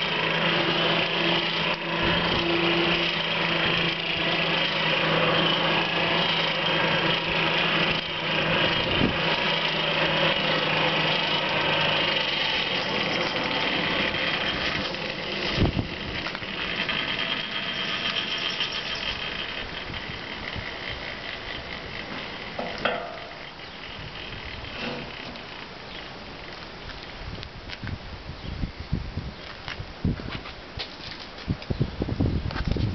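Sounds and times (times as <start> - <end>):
forge air blower rushing: 0.0 - 26.5
low blower hum: 0.0 - 30.8
short metallic ring: 22.6 - 23.5.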